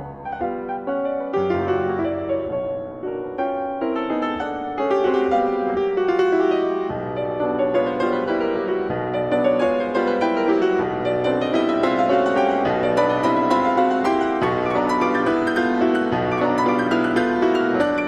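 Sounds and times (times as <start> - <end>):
solo piano waltz: 0.0 - 18.0.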